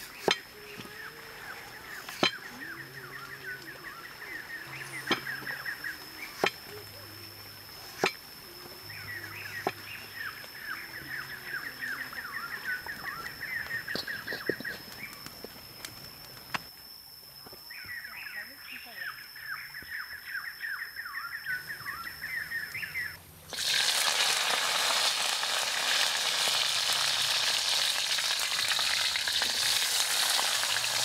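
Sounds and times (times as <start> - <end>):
birds chirping: 0.0 - 16.6, 17.6 - 23.2
high-pitched whine: 0.0 - 23.4.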